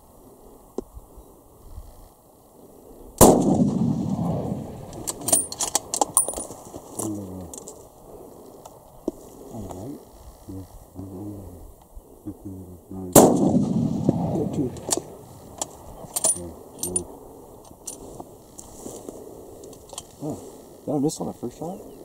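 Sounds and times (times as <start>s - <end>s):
rifle shot: 3.2s - 6.2s, 13.1s - 15.3s.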